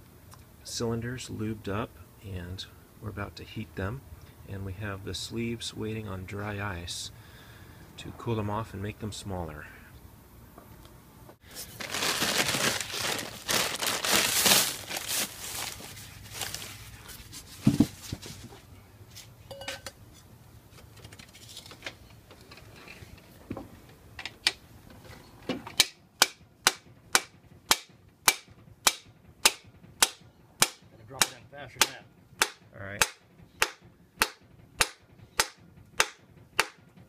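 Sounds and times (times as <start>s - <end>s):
mallet striking metal driver: 25.8s - 36.8s.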